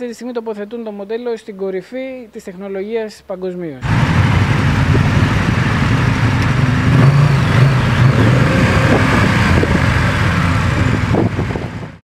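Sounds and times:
motorcycle engines running: 0:03.8 - 0:12.0.

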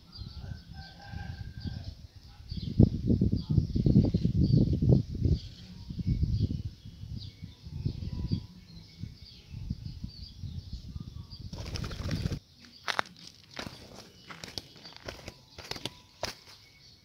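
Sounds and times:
low thumping of wings: 0:11.5 - 0:12.4
doves' wings flapping: 0:11.5 - 0:16.6.

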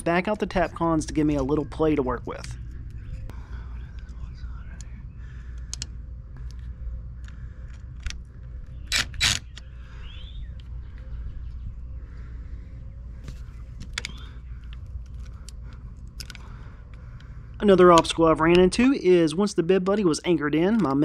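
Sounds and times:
cordless driver whirring: 0:07.2 - 0:09.7.

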